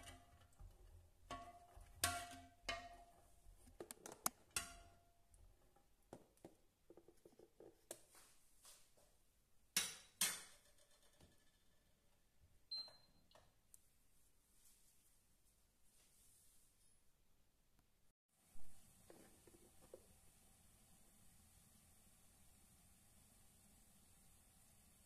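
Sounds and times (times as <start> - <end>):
spoon knocking on pot: 0.0 - 5.0.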